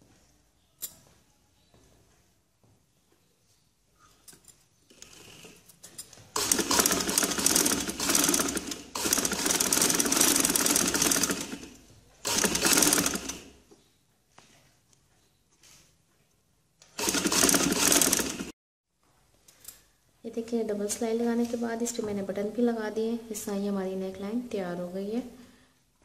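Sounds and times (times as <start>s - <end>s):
sewing machine stitching: 6.3s - 13.6s, 17.0s - 18.5s.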